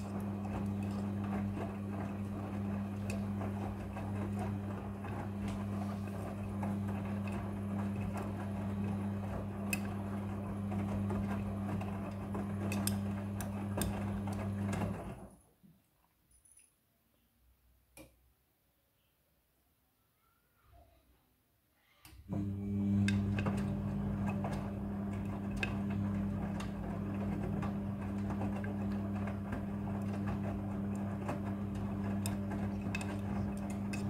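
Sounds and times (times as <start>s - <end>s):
washing machine drum motor humming: 0.0s - 15.3s, 22.2s - 34.0s.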